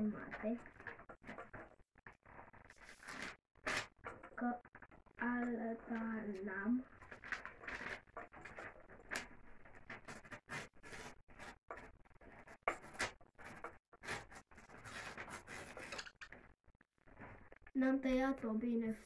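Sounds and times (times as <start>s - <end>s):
paper tearing and crinkling: 2.7s - 4.1s, 12.8s - 16.3s.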